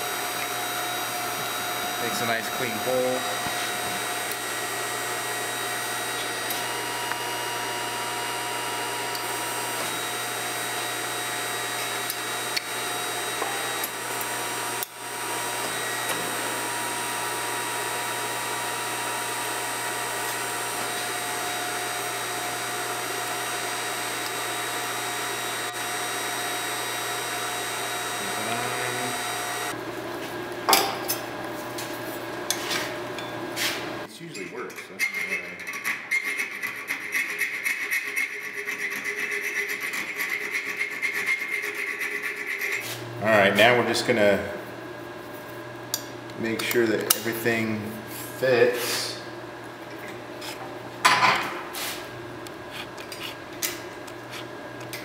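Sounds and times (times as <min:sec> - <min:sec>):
electric motor humming: 0:00.0 - 0:34.1.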